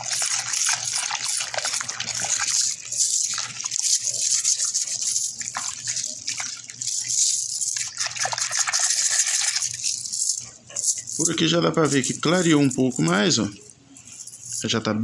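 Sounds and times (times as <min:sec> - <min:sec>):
water sloshing in a plastic basin: 0:00.0 - 0:10.0
metal chain links clinking: 0:00.7 - 0:14.8.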